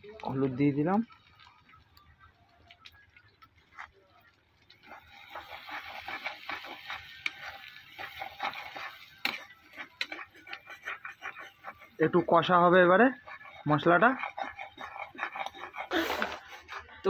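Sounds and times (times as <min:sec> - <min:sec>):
food frying in oil: 0:00.0 - 0:17.0
spatula scraping a pan: 0:04.7 - 0:17.0.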